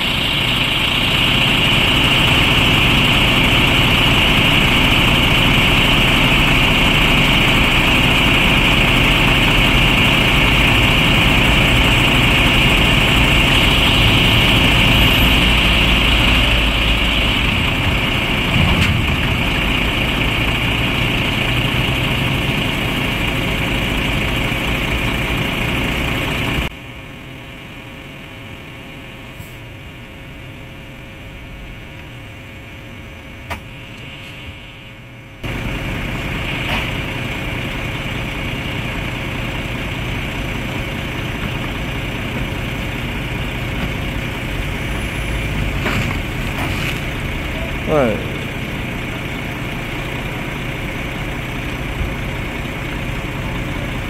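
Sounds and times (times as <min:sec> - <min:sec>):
steady high whine: 0:00.0 - 0:21.7, 0:22.6 - 0:40.8
truck diesel engines running: 0:00.0 - 0:54.0.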